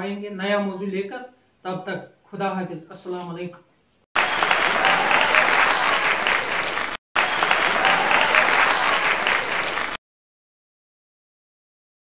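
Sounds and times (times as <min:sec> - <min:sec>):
crowd clapping: 0:04.2 - 0:10.0.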